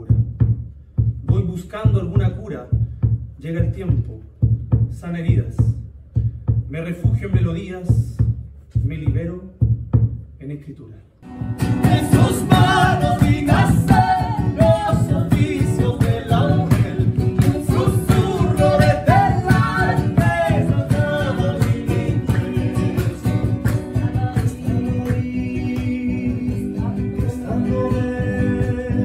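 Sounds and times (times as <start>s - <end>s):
hand drum beaten with a stick: 0.0s - 10.3s, 11.6s - 29.0s
person singing: 11.7s - 29.0s.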